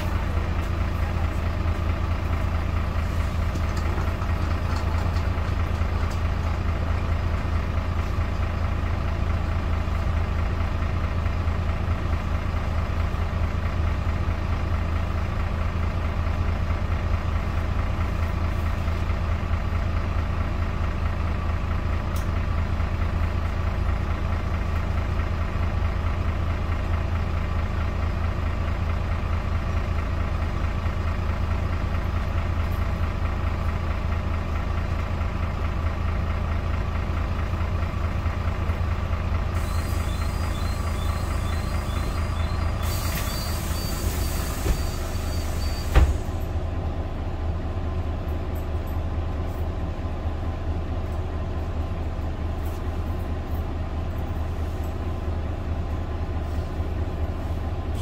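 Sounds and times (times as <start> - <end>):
diesel bus engine idling: 0.0 - 58.0
pneumatic hiss: 39.6 - 46.5
bus doors closing thump: 42.8 - 46.5.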